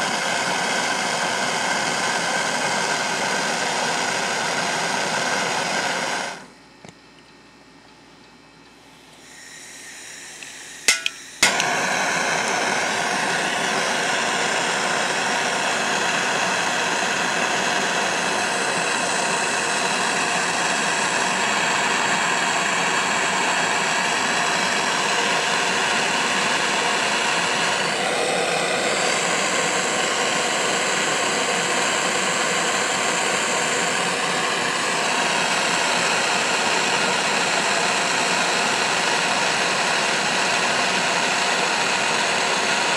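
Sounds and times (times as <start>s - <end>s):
gas torch flame hissing: 0.0s - 6.5s, 8.8s - 42.9s
torch igniter clicks: 10.4s - 12.8s.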